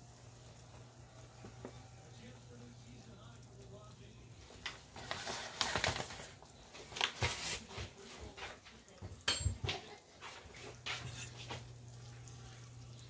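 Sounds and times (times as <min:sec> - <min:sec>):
sharp clink: 0:09.3 - 0:09.8
utensil scraping in a skillet: 0:10.1 - 0:13.0.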